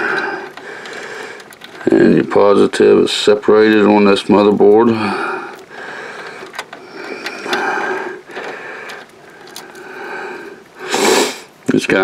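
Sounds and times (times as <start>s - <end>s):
man breathing congested: 0.0s - 1.8s, 4.9s - 11.6s
connector plugs clicking: 3.5s - 9.8s.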